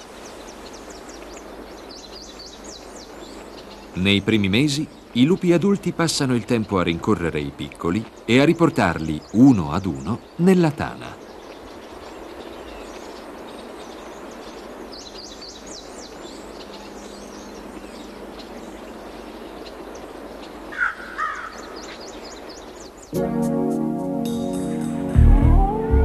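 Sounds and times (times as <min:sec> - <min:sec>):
harsh bird calls: 0:00.0 - 0:23.2
small birds chirping: 0:00.0 - 0:23.2
music: 0:23.1 - 0:26.0.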